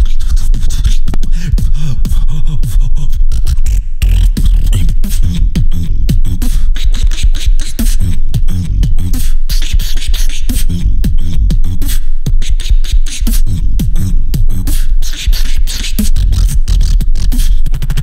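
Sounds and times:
beatboxing into microphone: 0.0 - 18.0
deep sliding bass notes: 1.0 - 6.6, 7.8 - 9.4, 10.6 - 11.9, 16.0 - 18.0.

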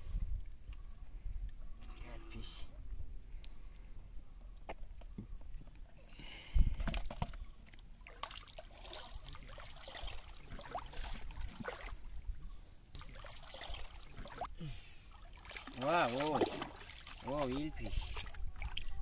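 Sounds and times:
shallow water splashing and trickling: 6.6 - 19.0.

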